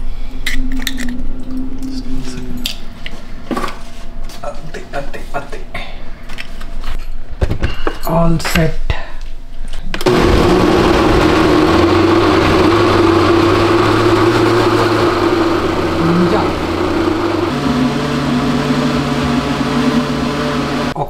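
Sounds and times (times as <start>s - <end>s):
blender motor whine: 10.0s - 21.0s.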